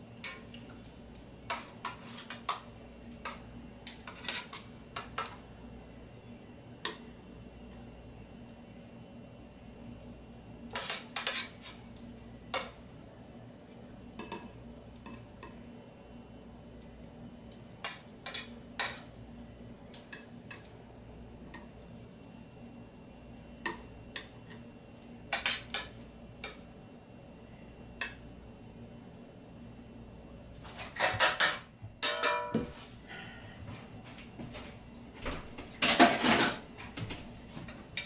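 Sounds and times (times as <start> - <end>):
low steady hum: 0.0 - 38.0
metal tongs clinking on pan and plate: 30.9 - 32.6.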